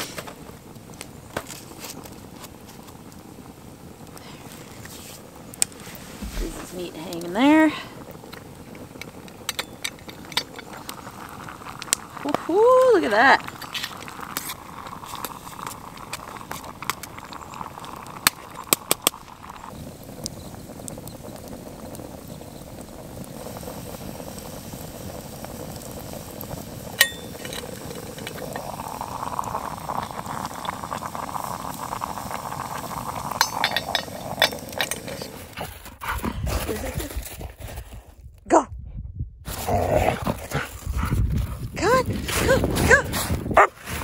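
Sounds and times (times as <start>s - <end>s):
stew bubbling in a pot: 0.0s - 37.6s
fire crackling: 0.0s - 38.4s, 39.5s - 44.0s
metal lid clinking: 27.0s - 28.7s, 33.4s - 35.3s.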